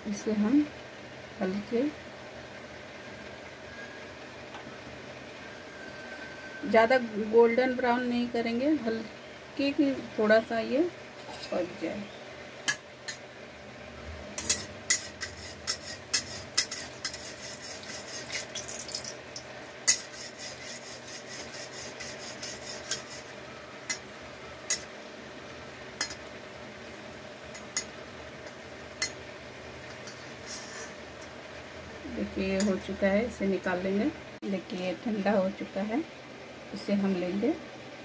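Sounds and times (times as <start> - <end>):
metal spatula scraping pan: 14.4 - 18.6, 19.8 - 24.0, 29.9 - 31.1
oil popping and crackling: 16.2 - 20.6.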